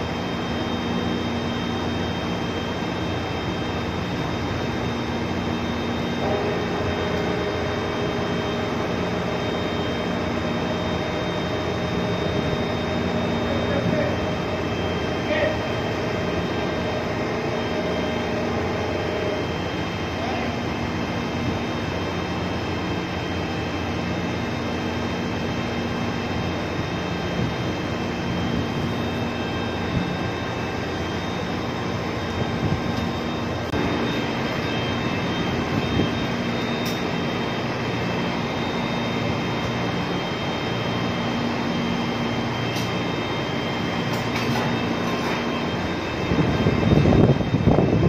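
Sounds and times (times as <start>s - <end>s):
ship machinery drone: 0.0s - 48.0s
loud irregular low rumbling: 1.8s - 23.2s.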